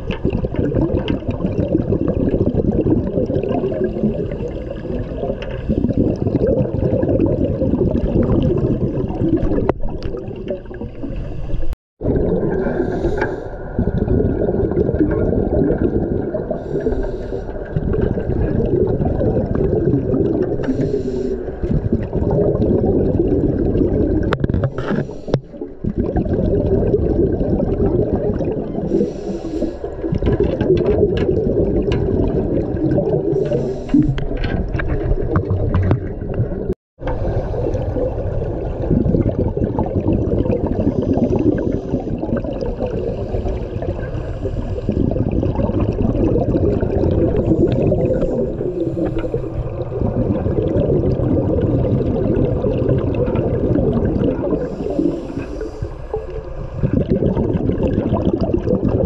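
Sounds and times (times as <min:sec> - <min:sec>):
muffled underwater rush: 0:00.0 - 0:59.0.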